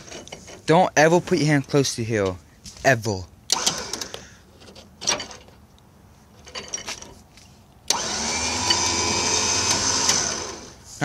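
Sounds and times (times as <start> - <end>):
electric winch motor whining: 3.5 - 4.3, 7.9 - 10.8.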